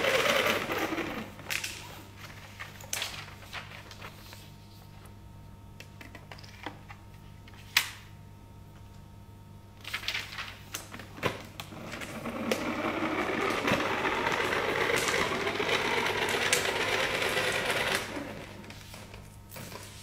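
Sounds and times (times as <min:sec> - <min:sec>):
toy scooter whirring and rattling: 0:00.0 - 0:01.3, 0:11.8 - 0:18.6.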